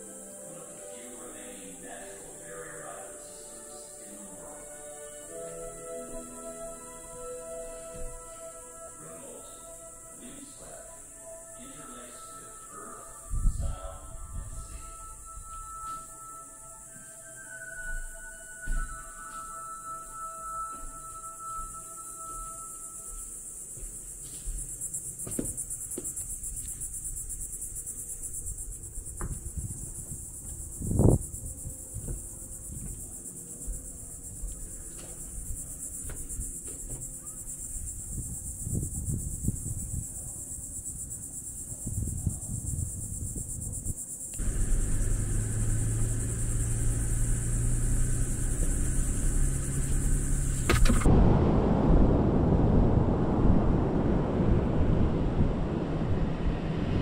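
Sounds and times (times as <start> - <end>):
high-pitched insect chorus: 0.0 - 51.1
wind rumble on microphone: 13.3 - 15.7, 26.2 - 36.6, 37.6 - 57.0
loud thump: 50.6 - 52.1.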